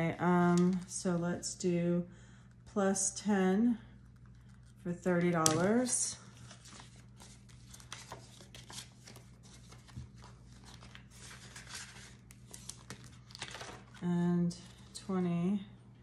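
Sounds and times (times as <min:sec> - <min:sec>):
paper banknotes crinkling: 0:04.3 - 0:14.0.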